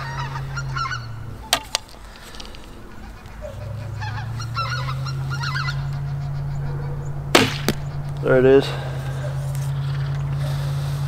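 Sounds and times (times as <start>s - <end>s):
geese honking: 0.0s - 11.0s.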